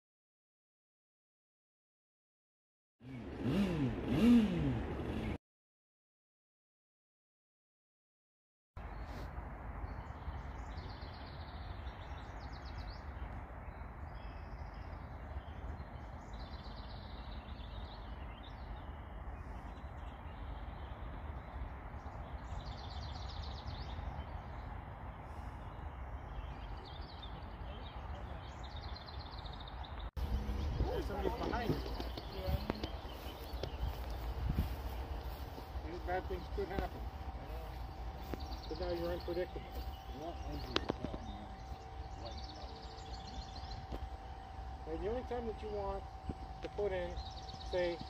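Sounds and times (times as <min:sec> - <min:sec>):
birds trilling: 0:09.8 - 0:48.0.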